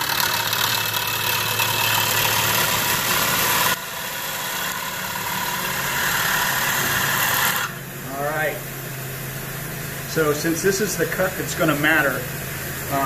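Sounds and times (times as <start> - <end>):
gouge cutting wood shavings hiss: 0.0 - 7.8
lathe motor hum: 0.0 - 8.1.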